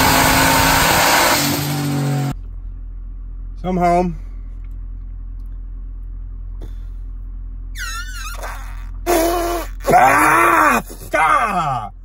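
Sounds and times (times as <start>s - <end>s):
low cabin drone: 1.9s - 11.1s
man vocalizing: 8.4s - 12.0s.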